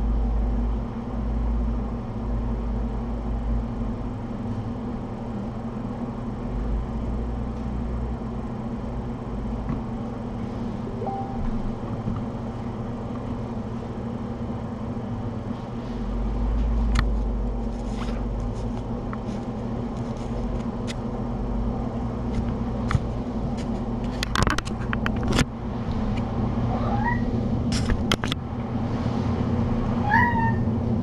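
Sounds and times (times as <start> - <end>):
low machine hum: 0.0 - 31.0
deep rumble: 6.3 - 13.8
sharp clicks and knocks: 22.3 - 26.3, 27.7 - 28.4.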